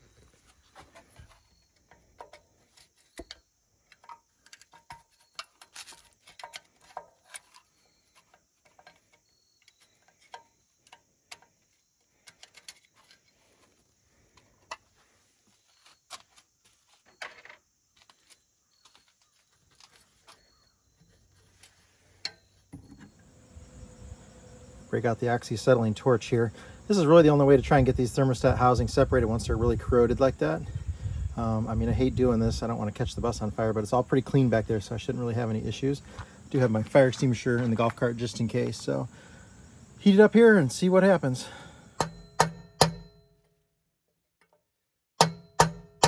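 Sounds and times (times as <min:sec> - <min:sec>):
metal washers and bolts clinking: 0:00.9 - 0:13.4.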